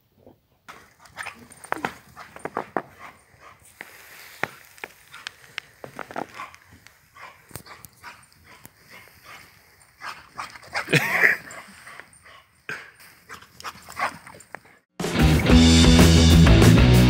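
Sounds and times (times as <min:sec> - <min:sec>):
footsteps in snow: 0:00.8 - 0:12.2.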